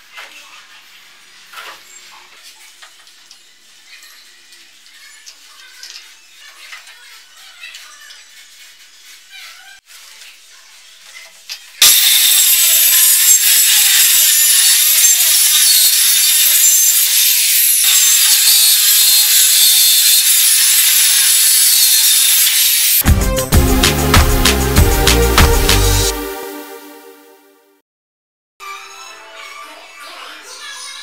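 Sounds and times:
circular saw cutting plywood: 11.8 - 23.0.

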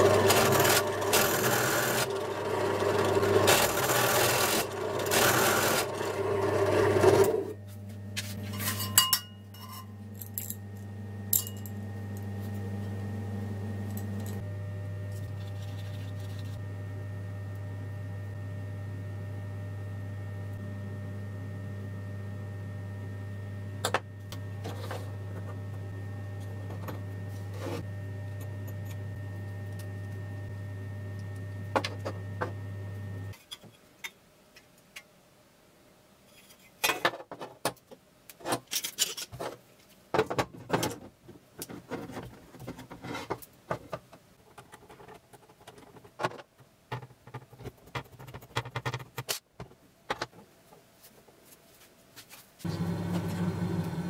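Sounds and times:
small metal parts being handled: 38.6 - 39.5.

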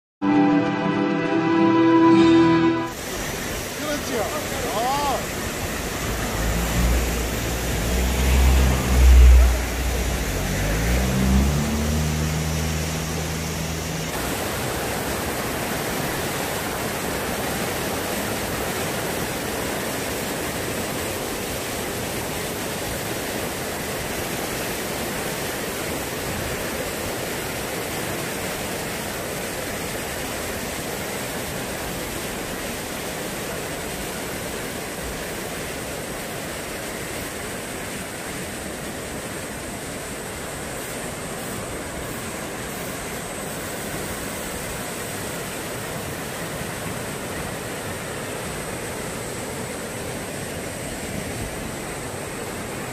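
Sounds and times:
low tones stepping up in pitch: 0.2 - 3.0
stream rushing over rocks: 0.2 - 52.9.

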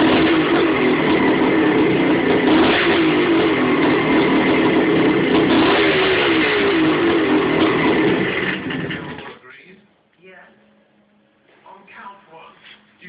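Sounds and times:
two-stroke engine fast idle: 0.0 - 9.4.

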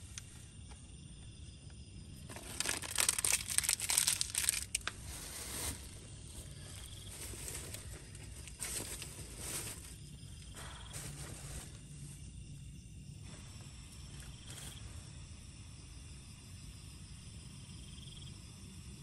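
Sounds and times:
plastic packaging crinkling: 2.2 - 10.0.

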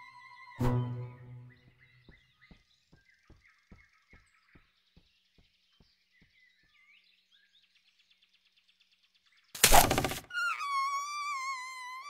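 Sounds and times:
small bird chirps: 0.0 - 12.0.

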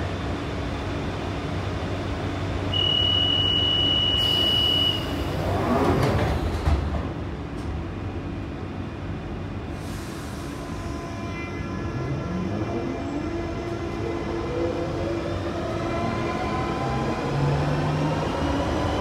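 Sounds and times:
train doors sliding shut: 4.2 - 7.8.

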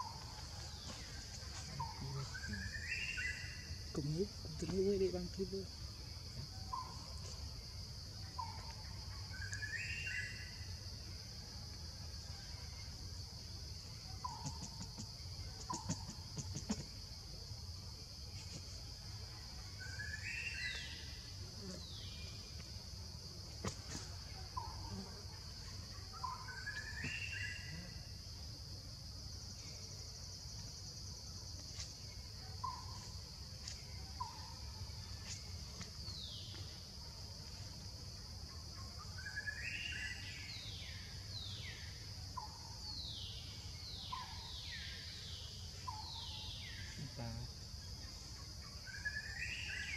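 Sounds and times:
high insect drone: 0.0 - 49.9.

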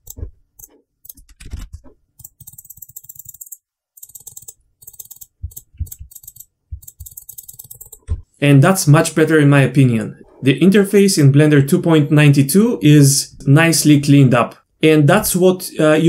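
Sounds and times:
mouse and keyboard clicking: 0.0 - 8.2.

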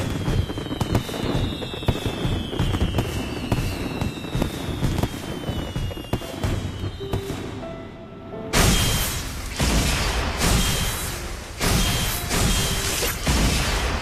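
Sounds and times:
descending firework whistles: 0.0 - 7.6, 8.6 - 14.0
fireworks bangs and crackles: 0.0 - 14.0.

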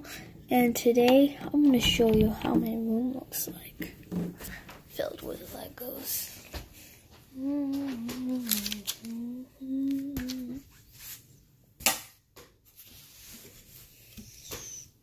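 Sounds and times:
person humming: 7.3 - 10.6.

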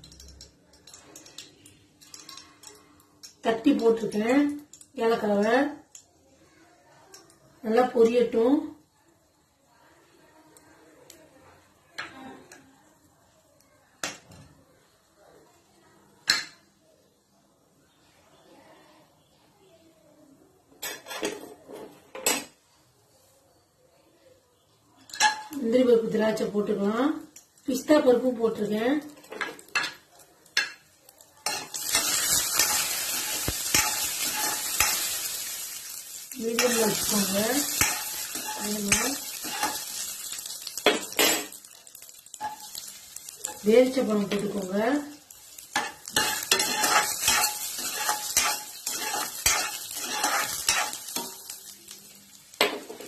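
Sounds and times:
metal spoon stirring: 0.0 - 3.5, 31.4 - 51.7
nuts sizzling in hot fat: 0.0 - 16.5, 24.6 - 53.0
spoon tapping against pan: 29.4 - 35.1, 36.5 - 43.6, 45.7 - 51.6.

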